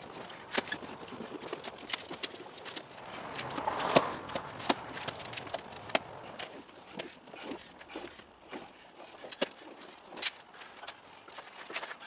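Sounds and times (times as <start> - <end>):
roller clicks and knocks: 0.0 - 9.6
rolling rush: 2.7 - 6.6.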